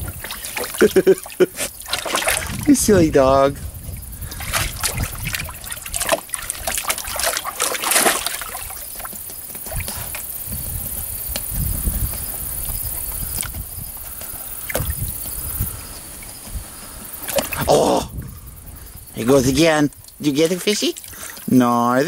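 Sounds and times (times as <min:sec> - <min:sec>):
water splashing in tank: 0:00.0 - 0:10.2
water trickling: 0:00.0 - 0:12.0, 0:19.2 - 0:22.0.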